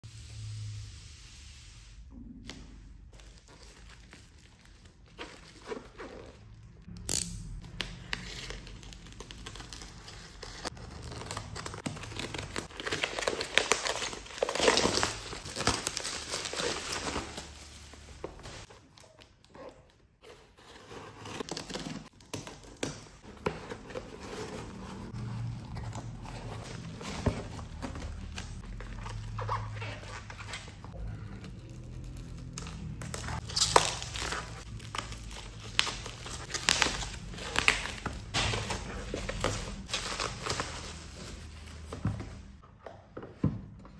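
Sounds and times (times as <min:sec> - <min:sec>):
plastic wrapping crinkling and tearing: 0:02.4 - 0:42.6.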